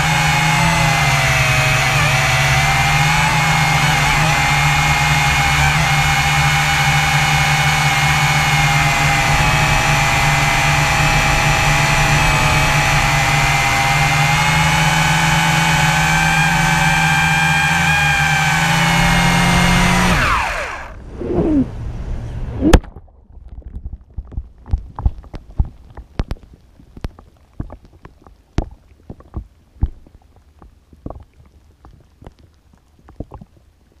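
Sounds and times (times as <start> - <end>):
drone propellers humming: 1.3 - 22.9
drone hitting water: 8.0 - 15.5, 20.9 - 24.9
muffled underwater clicks and knocks: 22.6 - 33.8.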